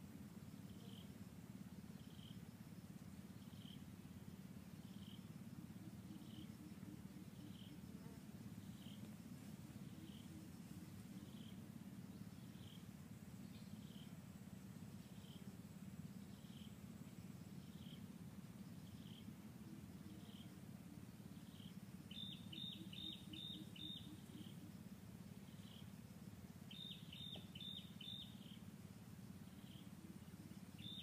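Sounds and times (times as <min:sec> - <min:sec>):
faint low rumble: 0:00.0 - 0:31.0
soft high chirp: 0:26.7 - 0:28.6.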